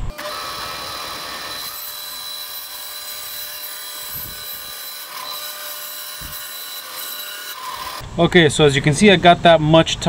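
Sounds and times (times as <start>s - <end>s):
bandsaw cutting plywood: 0.0s - 8.0s.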